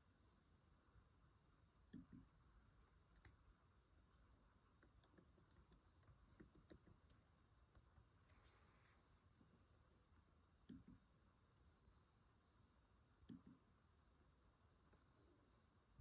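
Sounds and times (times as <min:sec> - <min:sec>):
laptop keyboard typing: 0:03.1 - 0:03.4, 0:04.8 - 0:08.1.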